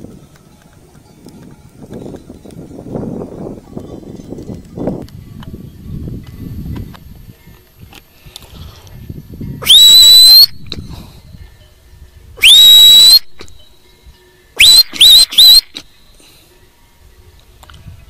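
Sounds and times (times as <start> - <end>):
shepherd's whistles: 14.6 - 15.8.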